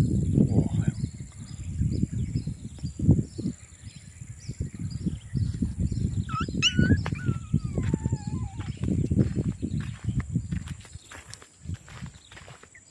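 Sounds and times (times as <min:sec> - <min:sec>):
faint bird chirps: 0:00.0 - 0:11.4
insect chirps: 0:00.0 - 0:12.9
wavering animal whine: 0:06.2 - 0:09.0
footsteps on dry weedy ground: 0:06.4 - 0:12.9.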